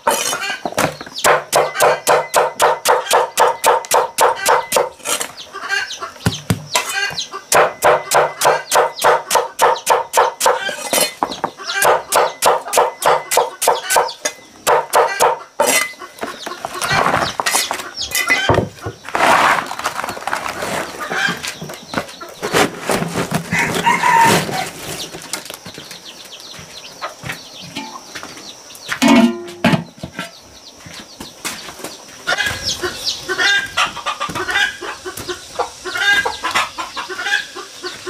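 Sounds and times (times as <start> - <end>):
chickens clucking: 0.0 - 38.0
knife chopping on wooden block: 0.1 - 4.9, 7.6 - 11.1, 11.8 - 15.8
shuffling and scraping: 15.6 - 32.7
metal pot lid clanking: 29.0 - 29.9.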